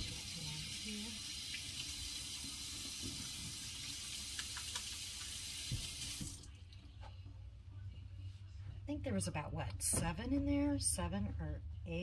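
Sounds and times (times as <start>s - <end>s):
tap water running into sink: 0.0s - 6.5s.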